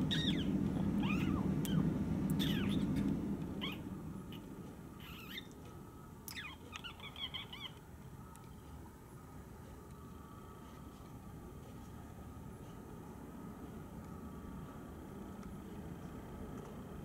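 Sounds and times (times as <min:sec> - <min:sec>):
low hum: 0:00.0 - 0:17.0
budgerigars chirping: 0:00.1 - 0:00.5, 0:02.4 - 0:04.4, 0:06.3 - 0:07.8.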